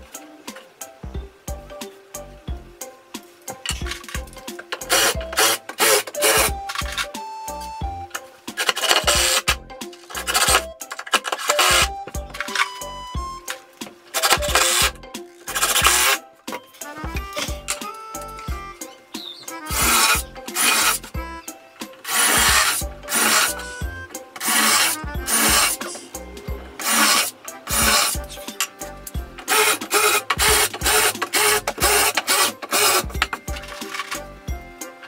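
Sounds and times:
background music: 0.0s - 35.0s
impact driver driving screws: 3.7s - 7.1s, 8.6s - 12.8s, 14.1s - 16.2s, 19.6s - 21.1s, 22.0s - 23.8s, 24.4s - 25.9s, 26.8s - 28.4s, 29.4s - 34.2s.

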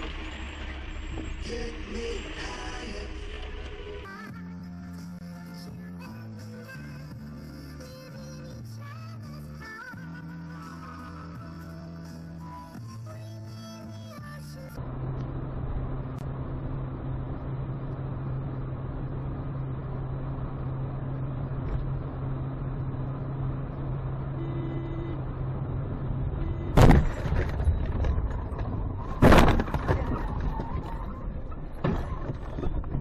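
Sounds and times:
car engine and road hum: 0.0s - 33.0s
loud car crash: 26.6s - 33.0s.

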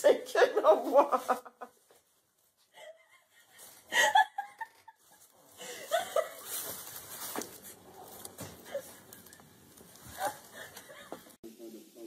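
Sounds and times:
person laughing in breathy bursts: 2.8s - 6.5s.

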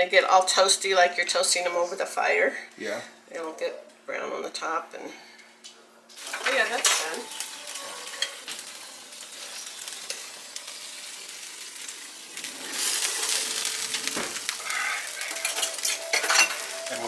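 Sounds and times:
drippings sizzling in pan: 6.1s - 17.0s
utensils clinking: 6.2s - 11.0s, 12.4s - 17.0s.

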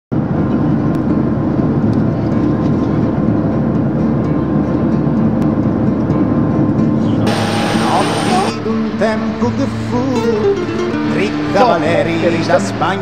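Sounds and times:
jet cabin engine and air rush: 7.2s - 8.7s
faint steady hum: 7.2s - 12.9s.

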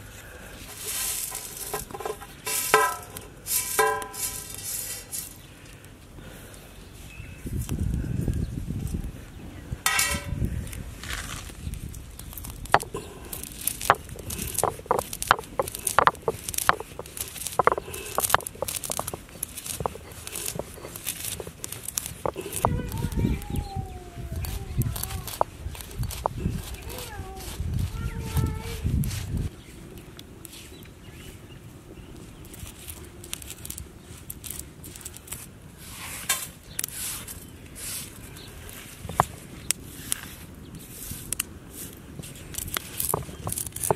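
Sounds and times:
stone roller rumbling: 0.0s - 5.5s, 9.8s - 29.4s, 41.2s - 43.9s
peppercorns cracking: 0.0s - 6.6s, 9.8s - 31.3s, 32.0s - 43.9s
hand sweeping pepper off stone: 0.6s - 5.4s.

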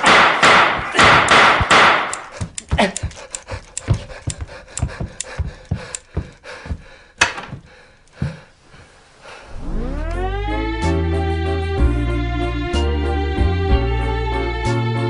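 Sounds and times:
irregular knocks and thumps: 0.8s - 8.5s
heavy panting breaths: 2.2s - 9.6s.

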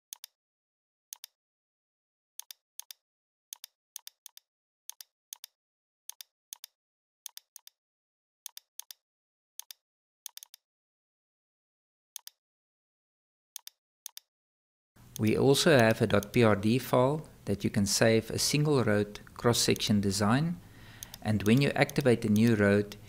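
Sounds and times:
computer mouse clicks: 0.1s - 0.4s, 1.1s - 1.4s, 2.4s - 7.8s, 8.5s - 9.0s, 9.6s - 10.6s, 12.2s - 12.4s, 13.6s - 14.3s, 15.1s - 16.4s, 21.0s - 23.0s.

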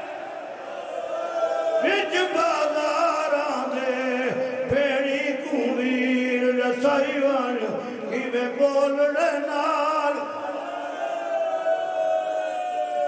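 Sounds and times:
man chanting into microphones: 1.8s - 10.7s.

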